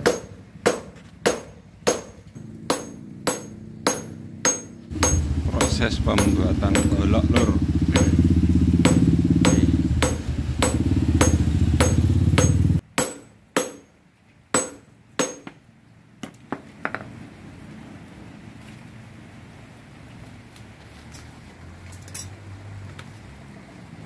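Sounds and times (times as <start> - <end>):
hammer ringing on anvil: 1.3 - 13.9
loud low drone: 2.4 - 12.8
light metal clinks: 21.9 - 22.4.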